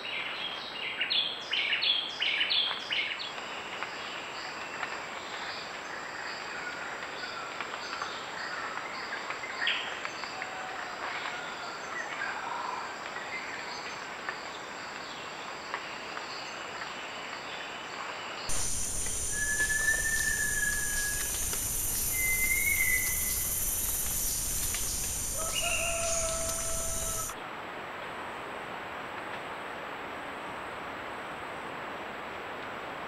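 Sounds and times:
faint bird and insect calls: 0.0s - 27.4s
birds whistling: 18.5s - 27.3s
steady high hiss: 18.5s - 27.4s.

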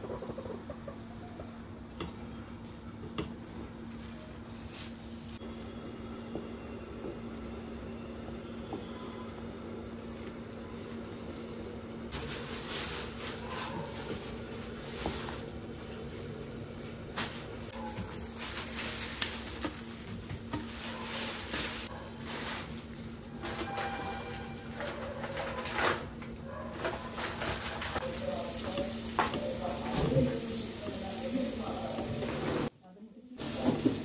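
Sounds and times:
wooden spatula scraping and stirring: 19.5s - 30.4s.

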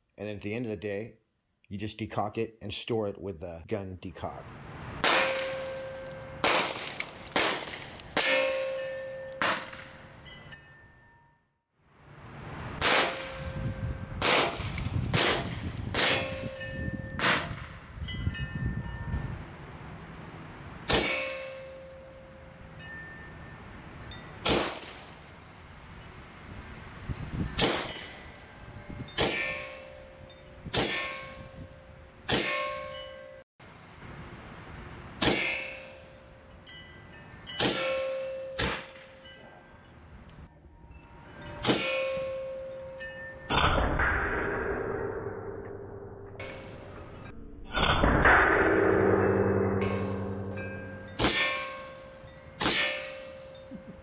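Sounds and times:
metallic ringing clang: 5.1s - 11.4s, 14.6s - 19.2s, 20.9s - 25.3s, 26.0s - 33.4s, 35.2s - 40.0s, 40.8s - 54.0s
air pistol shots: 6.4s - 8.6s, 9.4s - 9.9s, 12.8s - 13.4s, 14.2s - 16.3s, 17.2s - 17.8s, 24.4s - 25.0s, 27.6s - 28.1s, 30.7s - 31.2s.

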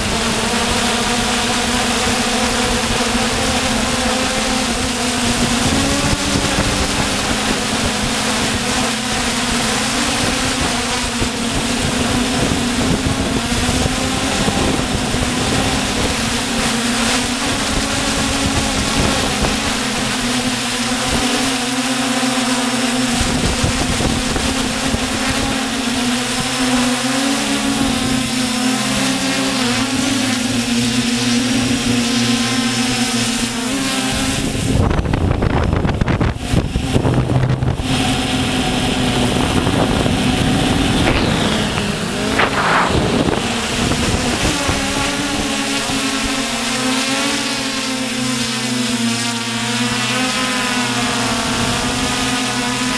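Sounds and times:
drone propellers buzzing: 0.0s - 52.9s
loud low rushing noise: 40.3s - 44.3s.

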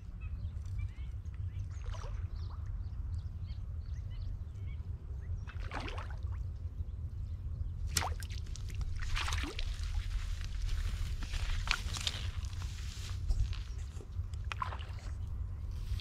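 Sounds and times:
steady low rumble: 0.0s - 16.0s
fish splashing in water: 7.9s - 10.1s.

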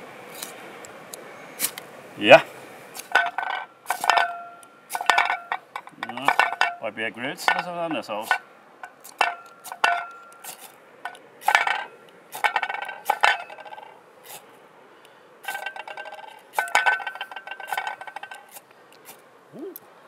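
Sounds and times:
fire steel scraping with metallic ring: 3.0s - 14.5s, 15.4s - 18.7s.

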